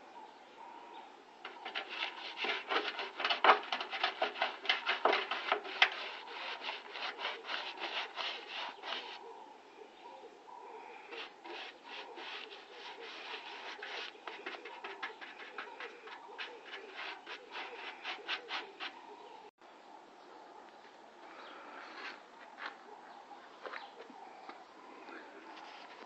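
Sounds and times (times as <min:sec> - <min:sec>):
hand sanding bodywork: 0:01.4 - 0:09.2, 0:11.1 - 0:19.3.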